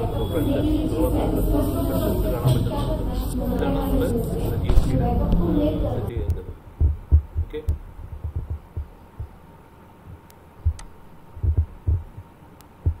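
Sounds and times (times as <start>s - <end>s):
faint steady hum: 0.0s - 13.0s
low thumps on microphone: 6.1s - 9.4s, 10.1s - 13.0s
faint sharp clicks: 10.2s - 10.9s.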